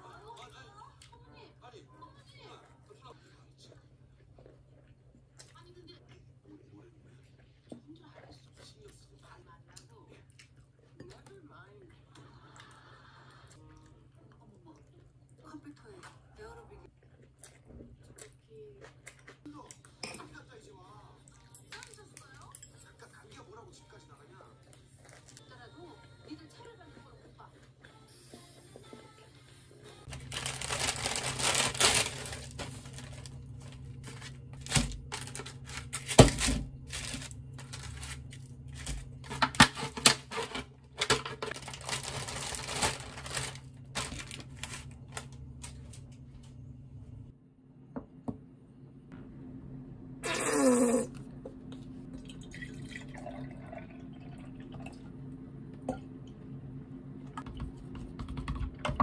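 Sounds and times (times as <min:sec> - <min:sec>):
milk pouring into a glass: 0:52.1 - 0:55.1.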